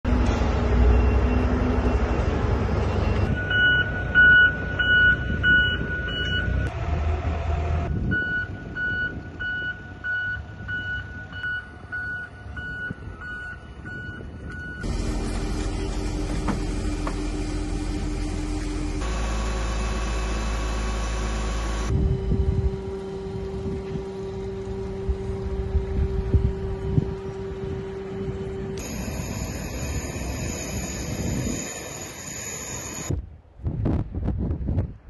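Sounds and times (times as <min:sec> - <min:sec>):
steady hum: 0:14.8 - 0:33.2
steady low rumble: 0:14.8 - 0:35.0.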